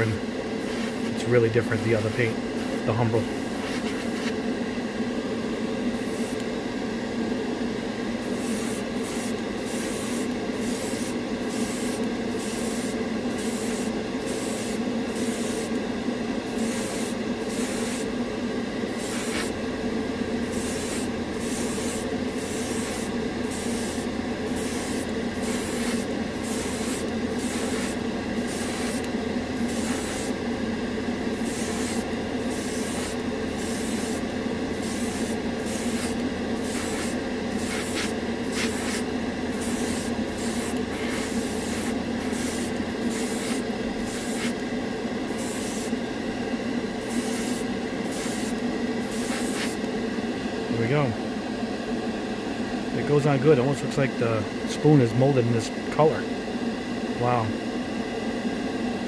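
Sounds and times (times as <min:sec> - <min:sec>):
extractor fan hum: 0:00.0 - 0:59.0
airbrush spraying hiss: 0:00.6 - 0:04.4, 0:06.0 - 0:06.5, 0:08.2 - 0:15.8, 0:16.5 - 0:18.1, 0:18.9 - 0:19.6, 0:20.4 - 0:30.4, 0:31.3 - 0:44.6, 0:45.3 - 0:46.0, 0:47.0 - 0:49.9.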